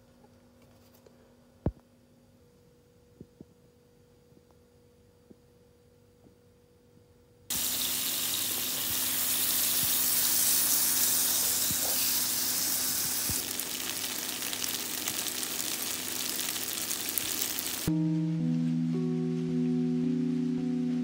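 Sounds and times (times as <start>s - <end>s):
spaghetti sizzling in a hot pan: 7.5s - 17.9s
faint hum: 12.7s - 21.0s.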